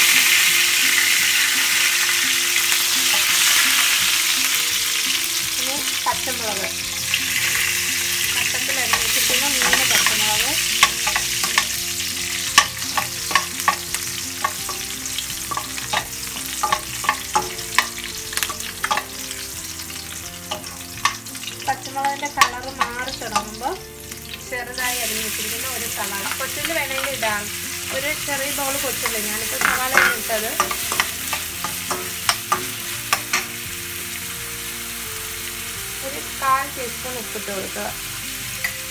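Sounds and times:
chillies sizzling in hot oil: 0.0 - 38.9
metal spoon clinking against pan: 8.4 - 19.2, 20.5 - 21.3, 28.9 - 33.6.

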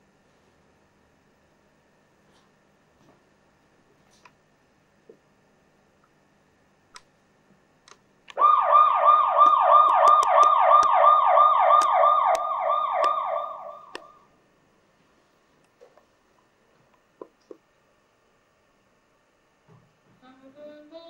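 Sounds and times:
siren-like warbling tone: 8.4 - 14.2
sharp clicks: 9.4 - 11.0, 11.7 - 14.1.

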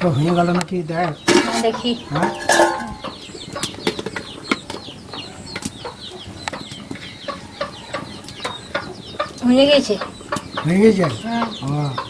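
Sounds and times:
chickens cheeping: 0.0 - 12.0
metal pot lid and ladle clinking: 1.3 - 3.1.

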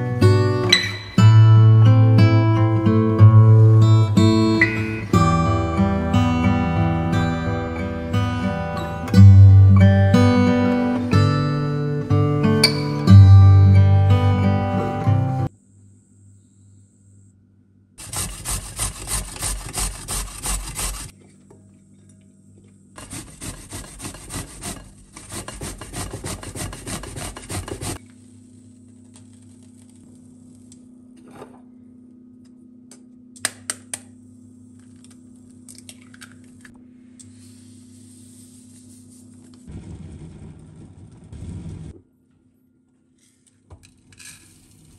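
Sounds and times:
grating on a metal grater: 18.0 - 21.1, 23.0 - 28.0.

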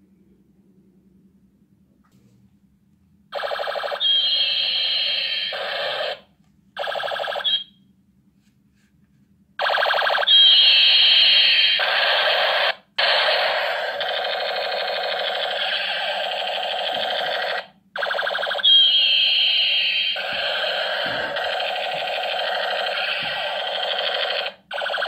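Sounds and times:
toy ray gun electronic warble: 3.4 - 6.2, 6.8 - 7.7, 9.6 - 25.0.

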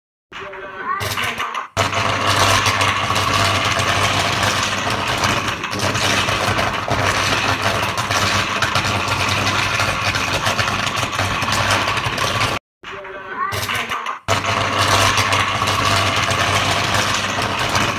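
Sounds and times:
generator engine droning: 1.8 - 12.6, 14.3 - 17.9.

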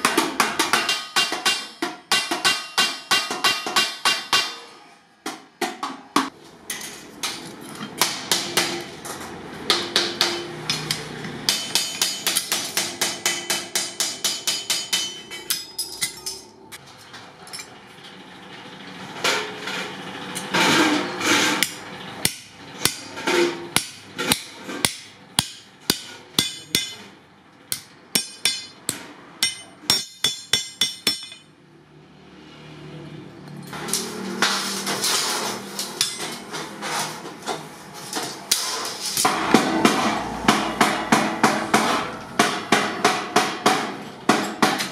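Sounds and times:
hammer striking metal: 0.0 - 9.0, 9.6 - 16.5, 20.4 - 27.1, 27.7 - 31.5, 33.7 - 36.9, 38.1 - 44.9
rough metallic noise: 33.4 - 42.4.

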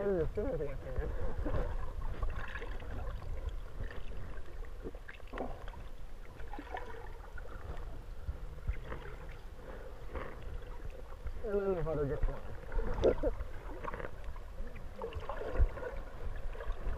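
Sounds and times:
underwater rumble of moving water: 0.0 - 16.9
small underwater clicks and pops: 12.2 - 15.8.

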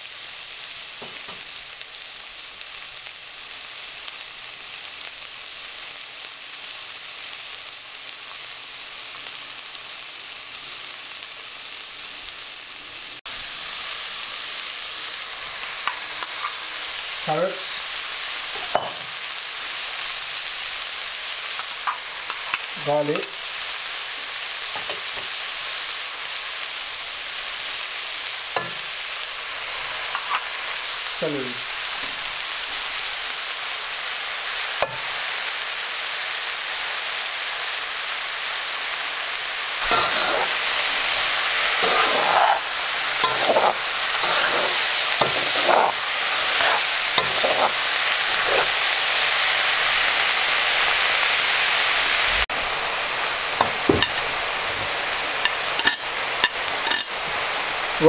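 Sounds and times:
vegetables sizzling in oil: 0.0 - 58.0
utensil scraping against pot: 39.8 - 48.9.

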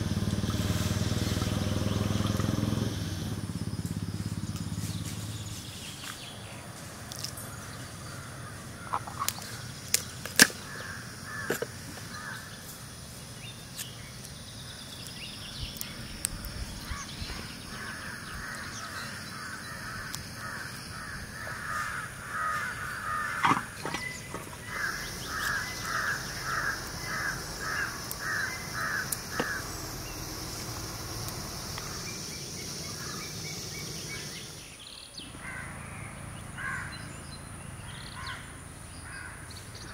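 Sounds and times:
bird calling repeated notes: 15.4 - 34.8
sharp clicks: 23.4 - 32.2.

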